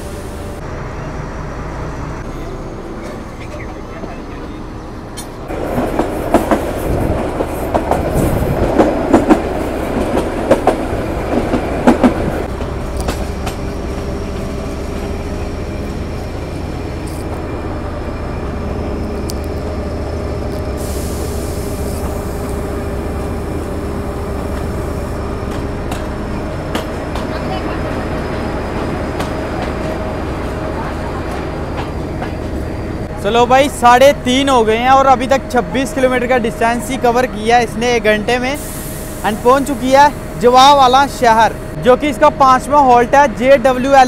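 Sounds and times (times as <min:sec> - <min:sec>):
diesel locomotive idling: 0:00.0 - 0:44.0
train wheels clattering on rails: 0:05.1 - 0:15.3, 0:22.0 - 0:33.0
air hiss: 0:20.7 - 0:22.7, 0:38.5 - 0:40.7.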